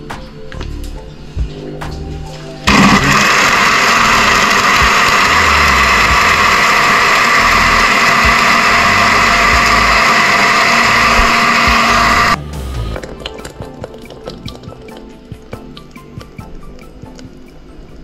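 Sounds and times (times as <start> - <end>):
electric blender running: 2.6 - 13.0.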